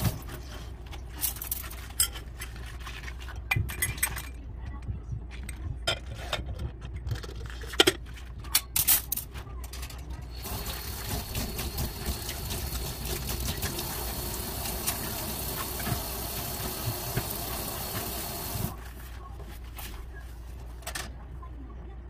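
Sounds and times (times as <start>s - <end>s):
tap running into steel sink: 10.4s - 18.7s.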